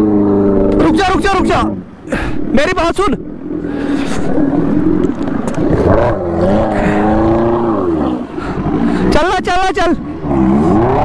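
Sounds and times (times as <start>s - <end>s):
motorcycle engine revving: 5.5s - 9.0s, 10.1s - 11.0s.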